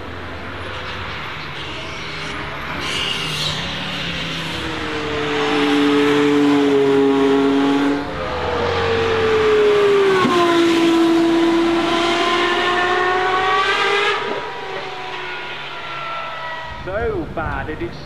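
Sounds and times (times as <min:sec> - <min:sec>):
sports car passing at high revs: 0:03.5 - 0:16.8.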